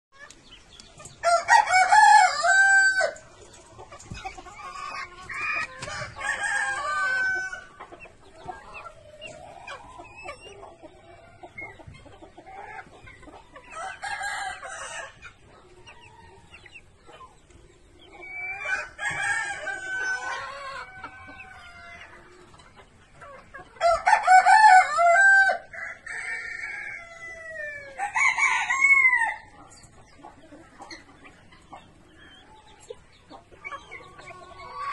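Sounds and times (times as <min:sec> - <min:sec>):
chickens clucking: 0:00.2 - 0:34.9
roosters crowing: 0:01.1 - 0:11.5, 0:13.5 - 0:16.6, 0:18.1 - 0:22.4, 0:23.8 - 0:29.6.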